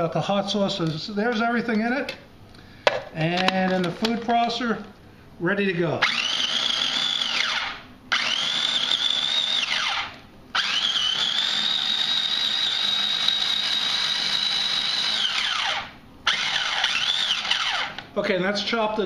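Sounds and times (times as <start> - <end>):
food processor motor whining: 6.0 - 18.1.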